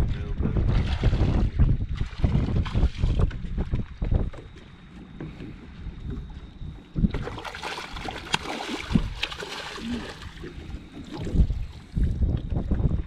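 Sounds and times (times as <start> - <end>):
fish thrashing and splashing: 7.1 - 11.9.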